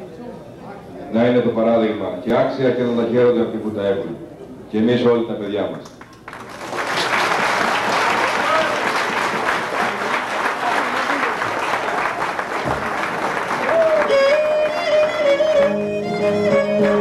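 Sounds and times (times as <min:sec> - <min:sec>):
crowd chatter: 0:00.0 - 0:02.1, 0:08.0 - 0:17.0
crowd applause: 0:06.0 - 0:17.0
bowed lyra melody: 0:14.1 - 0:17.0
lute strumming chords: 0:14.1 - 0:17.0.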